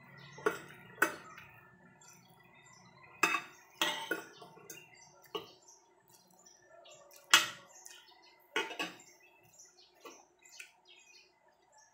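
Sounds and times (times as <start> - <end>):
cutlery clinking on a plate: 3.2 - 5.5, 7.2 - 7.7, 8.6 - 9.1.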